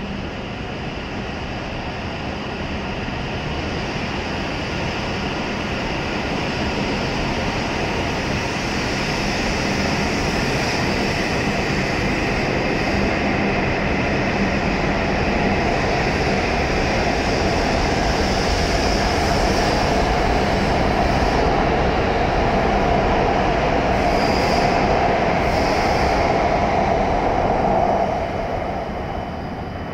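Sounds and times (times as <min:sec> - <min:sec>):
electric train accelerating: 0:00.0 - 0:29.9.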